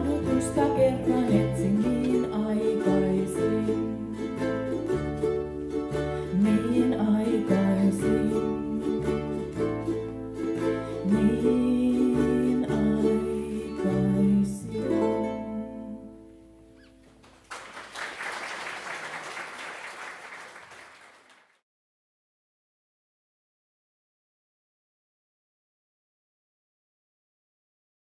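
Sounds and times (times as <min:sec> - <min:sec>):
woman singing: 0:00.0 - 0:04.4, 0:06.2 - 0:09.4, 0:11.0 - 0:16.3
ukulele ensemble strumming: 0:00.0 - 0:17.6
audience applause: 0:17.2 - 0:21.6.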